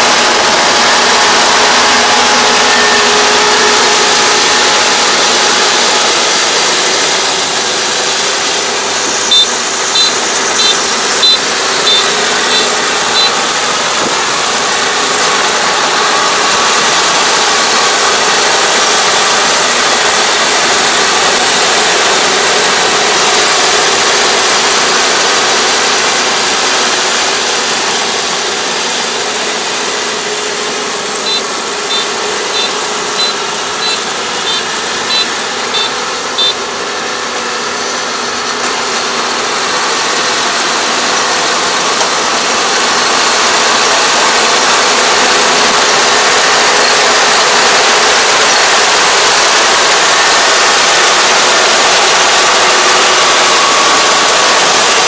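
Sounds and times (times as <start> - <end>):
combine harvester running: 0.0 - 55.0
short high beeps: 9.3 - 13.4, 31.2 - 36.6.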